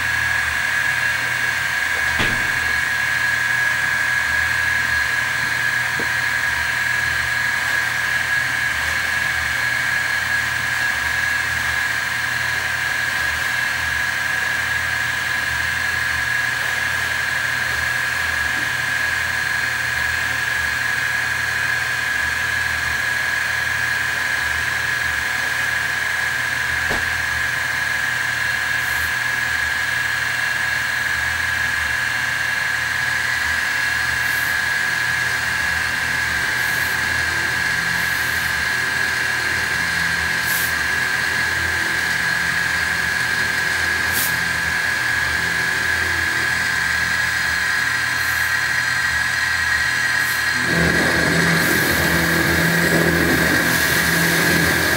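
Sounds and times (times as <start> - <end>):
end mill cutting metal: 1.6 - 4.1, 37.3 - 54.9
milling spindle whine: 31.0 - 54.9.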